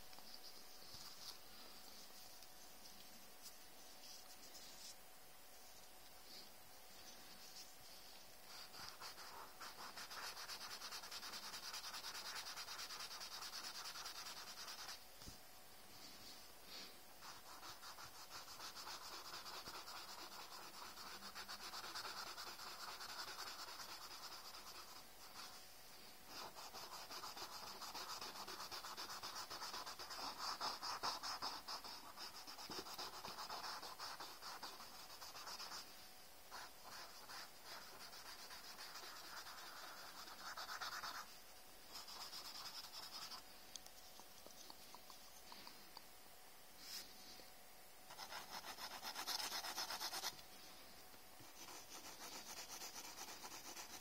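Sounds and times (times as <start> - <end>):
swab rubbing on paper: 7.0 - 15.0, 17.2 - 25.6, 26.3 - 35.9, 36.5 - 43.4, 48.1 - 50.4, 51.4 - 54.0.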